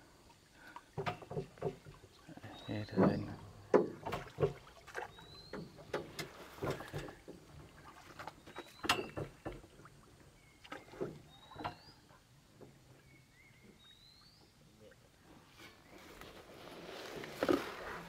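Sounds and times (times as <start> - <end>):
boat hull knocks and clunks: 0.9 - 10.0, 10.6 - 13.8
bird chirping: 2.3 - 3.5, 5.1 - 5.9, 8.4 - 9.2, 10.3 - 14.9.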